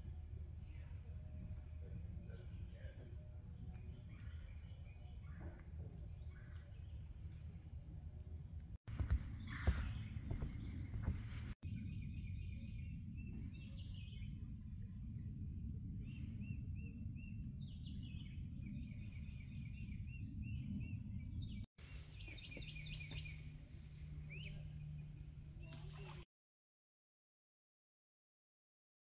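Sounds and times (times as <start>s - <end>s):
low background rumble: 0.0s - 26.2s
birds chirping and calling: 9.0s - 14.3s, 17.6s - 23.5s, 24.2s - 26.2s.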